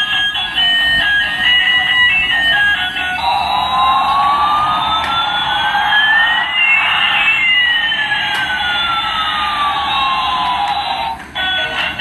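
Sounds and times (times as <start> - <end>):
electronic siren tones gliding: 1.2 - 11.0
steady electronic buzz: 2.4 - 10.3.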